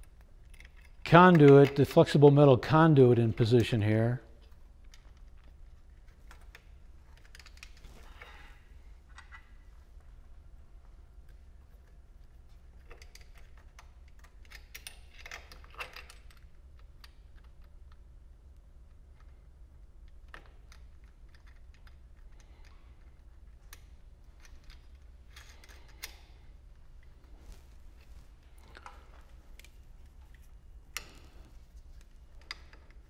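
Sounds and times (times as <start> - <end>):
small clicks and rattles: 0.0 - 2.1, 4.4 - 8.3, 10.9 - 27.3
steady low hum: 0.0 - 33.0.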